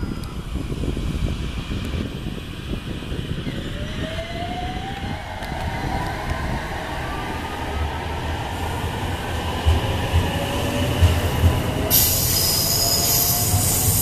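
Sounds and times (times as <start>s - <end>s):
loud high hiss: 11.9s - 14.0s.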